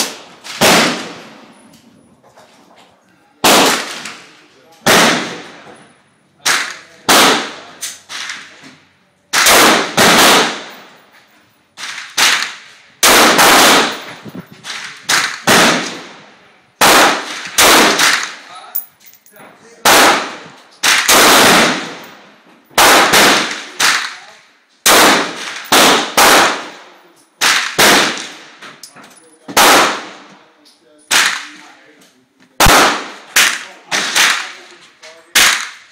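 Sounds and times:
rifle shots echoing: 0.0s - 1.5s, 3.4s - 5.7s, 6.4s - 8.6s, 9.3s - 11.0s, 11.8s - 18.5s, 19.8s - 24.2s, 24.8s - 28.6s, 29.5s - 30.3s, 32.6s - 34.7s, 35.3s - 35.9s.

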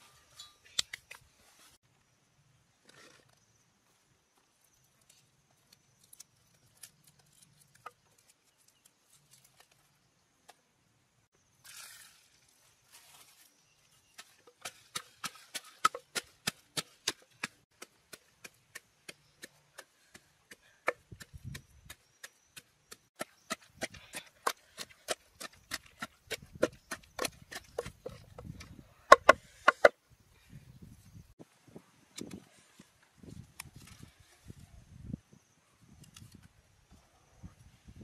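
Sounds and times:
chopping on wood: 23.2s - 29.9s.

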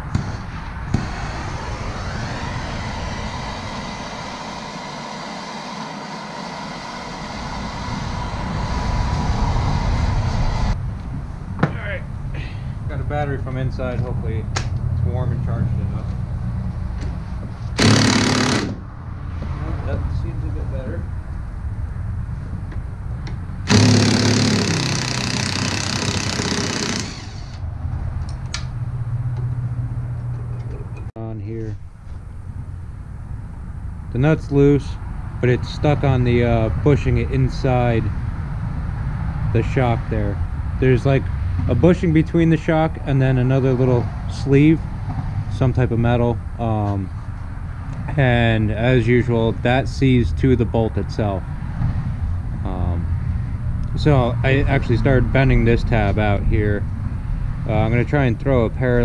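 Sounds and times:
torch flame hissing: 0.0s - 10.8s
impact wrench hammering: 17.8s - 18.8s, 23.7s - 27.6s.

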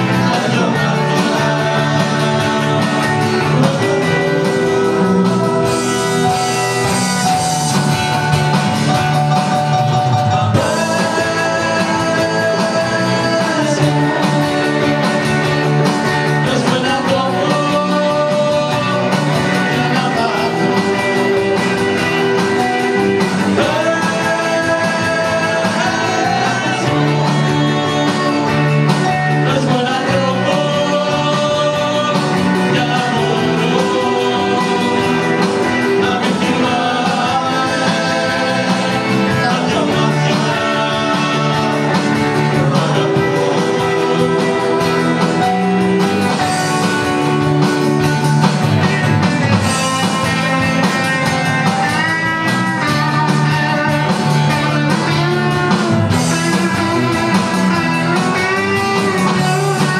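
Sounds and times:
person singing: 0.0s - 48.2s, 49.6s - 59.9s
rock band playing: 0.0s - 59.9s.

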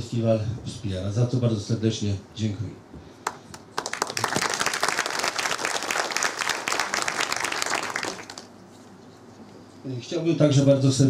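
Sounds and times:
audience applauding: 3.3s - 8.6s.

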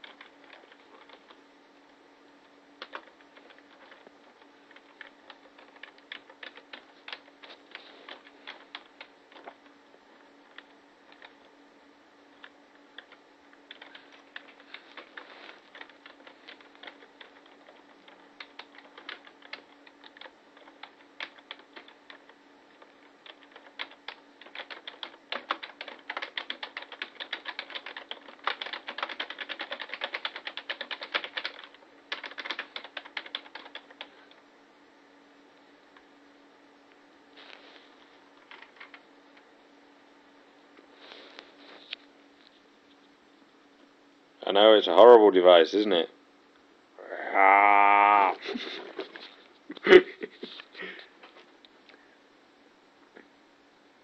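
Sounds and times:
computer keyboard typing: 0.0s - 1.4s, 2.8s - 9.7s, 10.4s - 11.5s, 12.4s - 34.2s, 38.4s - 39.0s.

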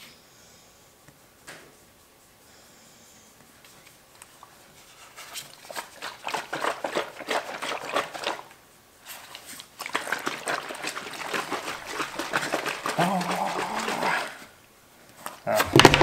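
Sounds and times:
plastic flask crackling: 5.4s - 8.6s, 9.2s - 14.5s, 15.3s - 16.0s
water sloshing: 5.7s - 8.5s, 9.3s - 14.5s.

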